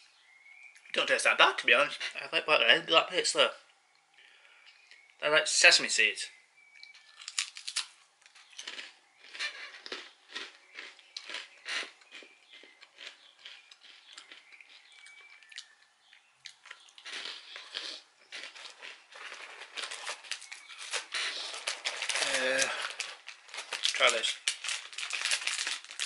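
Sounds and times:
rice cracker crunching: 0:06.8 - 0:26.0
snack wrapper rustling: 0:06.8 - 0:26.0.

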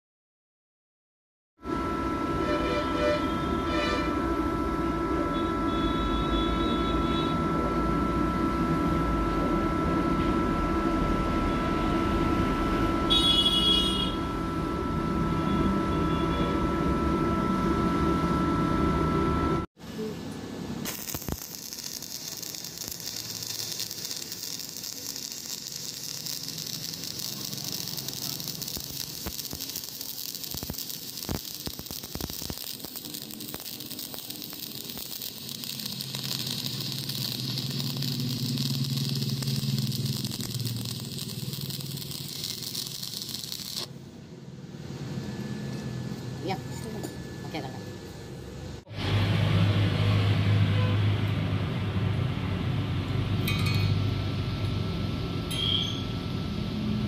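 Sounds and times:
steady hum: 0:01.7 - 0:50.3
welding arc crackling hiss: 0:13.1 - 0:14.2, 0:19.8 - 0:44.0.

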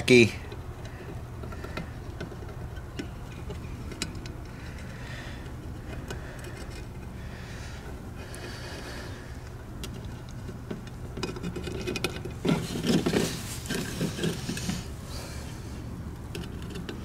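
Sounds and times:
steady low hum: 0:00.0 - 0:17.0
rubbing and rustling handling: 0:10.0 - 0:17.0.

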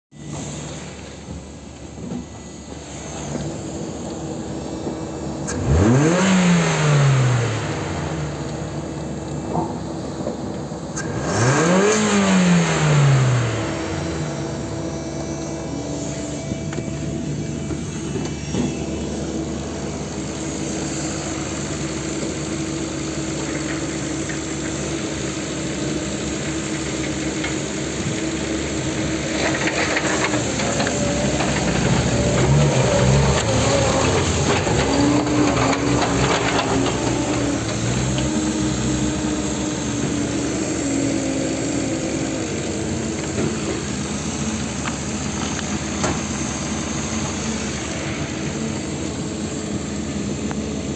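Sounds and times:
car engine revving and idling: 0:00.2 - 0:50.9.

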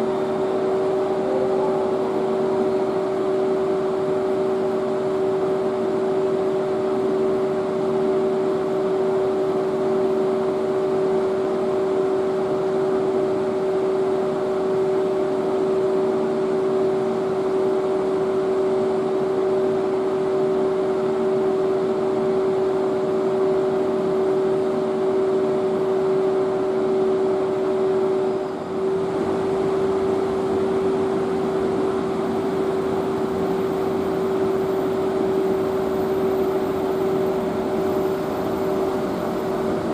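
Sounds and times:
whining tones: 0:00.0 - 0:04.8, 0:29.2 - 0:39.9
electric locomotive hum: 0:00.0 - 0:09.4, 0:23.4 - 0:39.9.

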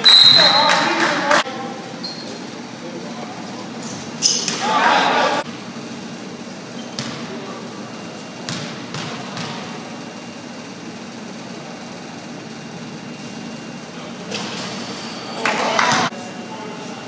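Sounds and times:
gymnasium hall hum: 0:00.0 - 0:17.0.

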